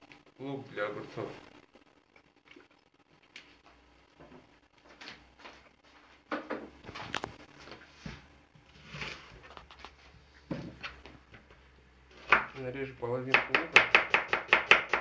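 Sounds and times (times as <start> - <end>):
onion on plastic cutting board: 7.7 - 11.2.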